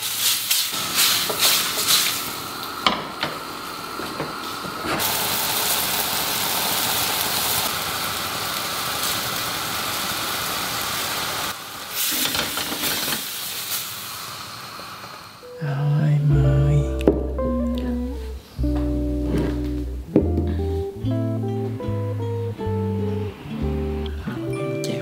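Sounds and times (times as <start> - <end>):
seafood sizzling in frying pan: 0.0 - 14.9.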